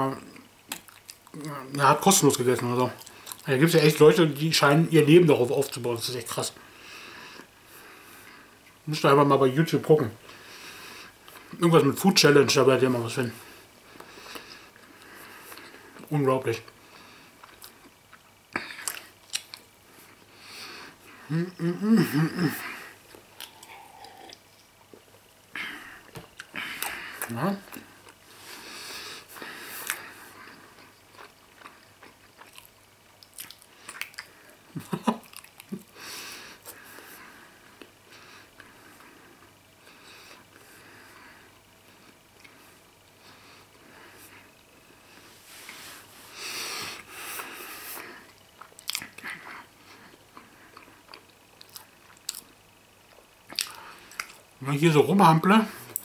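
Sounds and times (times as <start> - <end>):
person chewing: 0.3 - 1.6, 3.0 - 3.4, 17.4 - 19.7, 23.0 - 25.2, 29.6 - 35.9, 47.0 - 54.5.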